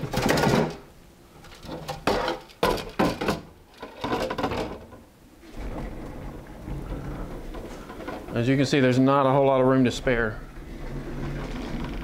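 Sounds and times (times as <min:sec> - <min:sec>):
dust collector bumping and scraping: 0:05.4 - 0:12.0.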